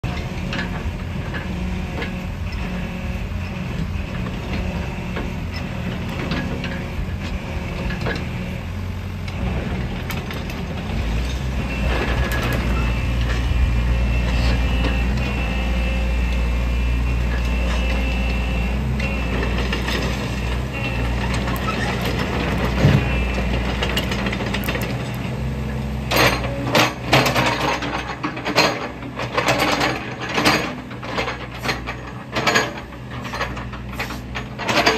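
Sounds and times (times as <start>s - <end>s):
excavator diesel engine: 0.0s - 34.9s
metallic clicks and clanks: 26.1s - 34.9s.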